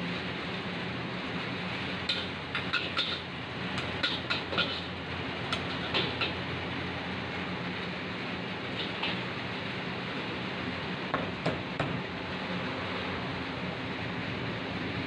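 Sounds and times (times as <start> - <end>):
gas burner roar: 0.0 - 15.0
spatulas clanking against wok: 2.0 - 6.4, 8.7 - 9.3.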